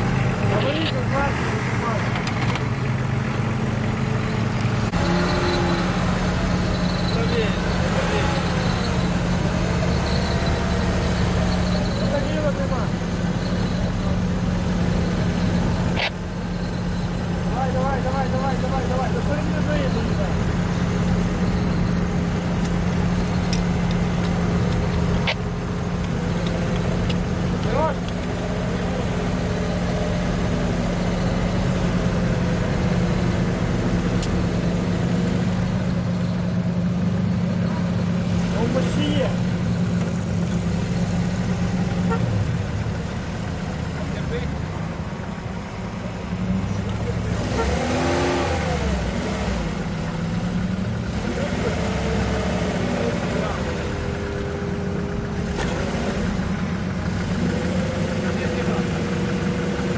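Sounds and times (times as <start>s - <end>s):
car engine running at low revs: 0.0s - 59.9s.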